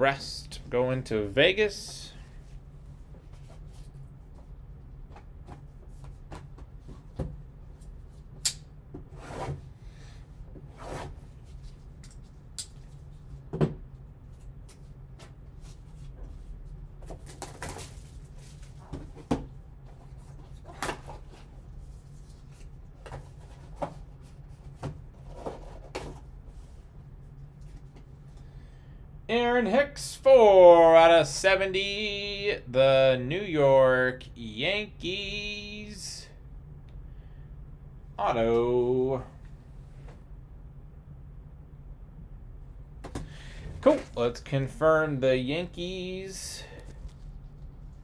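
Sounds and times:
steady low hum: 0.0 - 48.0
rustling cardboard and paper: 15.2 - 26.8.

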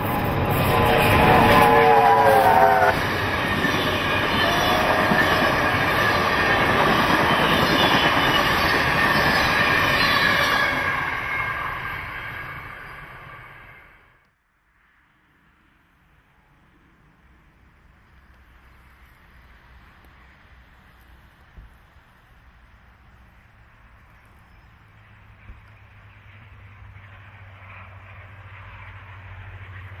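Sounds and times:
train running on a bridge: 0.0 - 30.0
steam chime whistle: 0.1 - 14.1.

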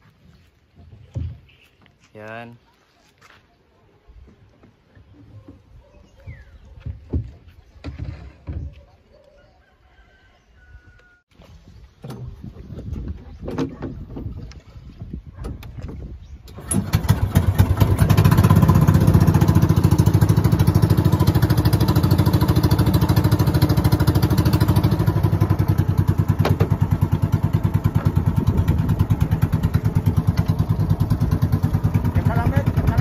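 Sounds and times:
boat engine putter: 12.0 - 14.5, 15.3 - 33.0.

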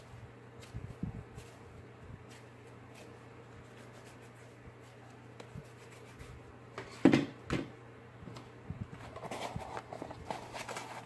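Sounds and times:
hands kneading clay slime: 0.0 - 6.4
low steady hum: 0.0 - 11.0.

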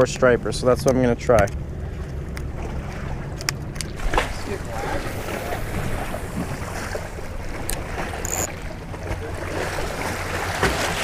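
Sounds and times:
waves washing against rocks: 3.9 - 8.5.

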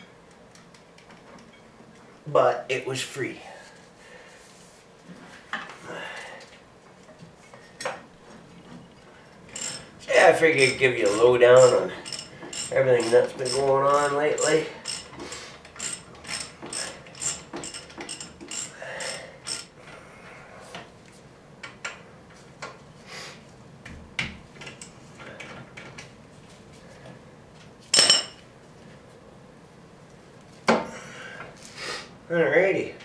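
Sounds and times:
hand ratchet clicking: 9.5 - 19.7.

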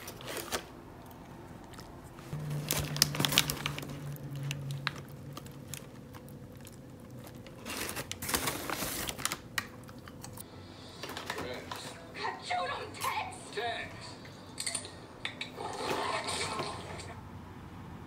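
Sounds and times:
hand rustling through popcorn: 1.9 - 9.6
paper bag crinkling: 2.3 - 9.8.

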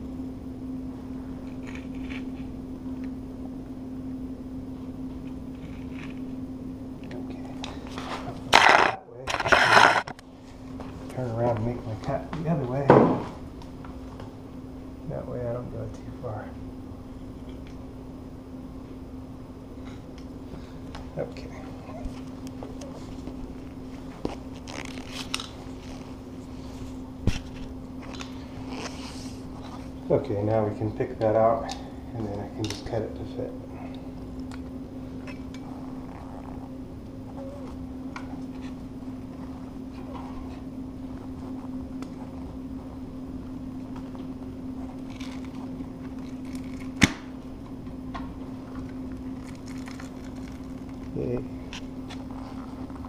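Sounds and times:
steady low hum: 0.0 - 53.0
vinyl flooring crunching and scraping: 7.7 - 12.2, 22.0 - 29.9
vinyl plank snapping: 46.8 - 47.3.

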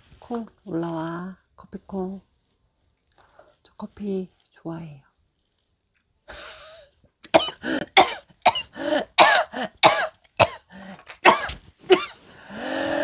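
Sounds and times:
woman coughing hard: 7.3 - 12.2.

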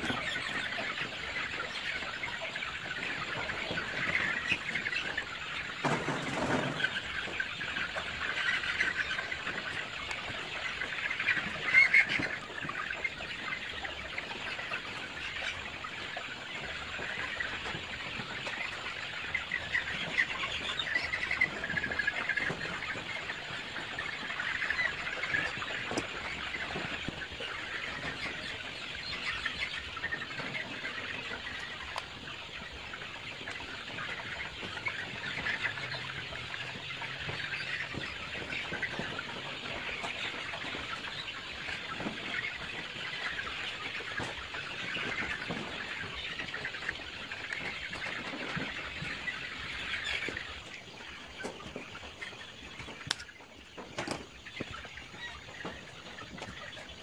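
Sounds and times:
chicks peeping: 0.0 - 57.0.

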